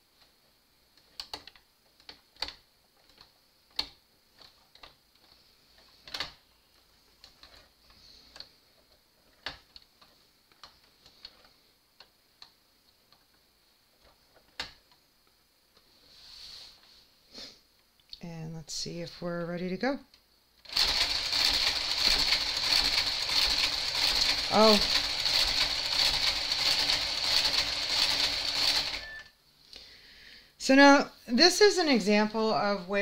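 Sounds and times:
knitting machine carriage clicks: 1.1 - 5.3, 20.6 - 29.2
faint high whine: 28.8 - 29.4.

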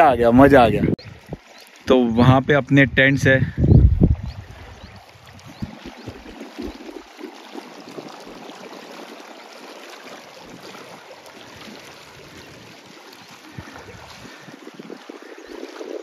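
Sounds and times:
waves lapping against rocks: 3.6 - 16.0.

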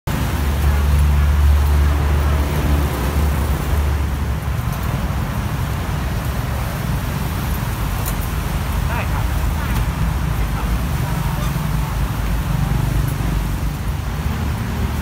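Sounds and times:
cars passing on a wet road: 0.1 - 15.0
heavy vehicle engine rumbling: 0.1 - 15.0.

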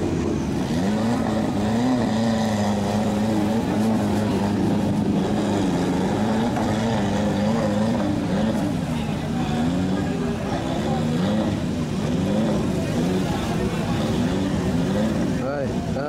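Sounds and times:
truck engine labouring: 0.0 - 16.0.

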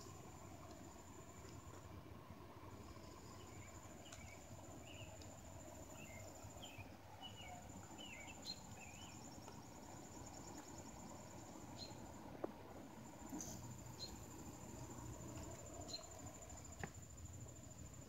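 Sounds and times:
low background rumble: 0.0 - 18.0
high insect trill: 2.6 - 18.0
bird chirping: 5.9 - 9.4, 11.8 - 12.0, 14.0 - 14.3.

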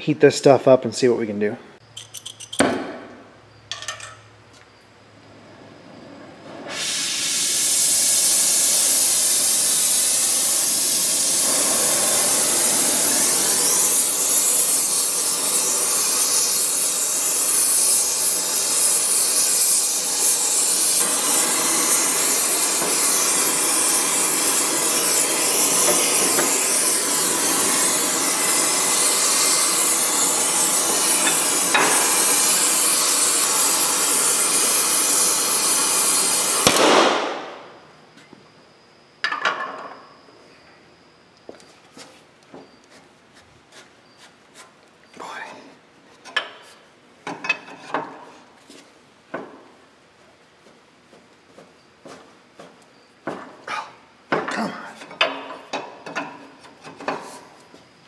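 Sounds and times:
torch flame hissing: 6.4 - 37.8.

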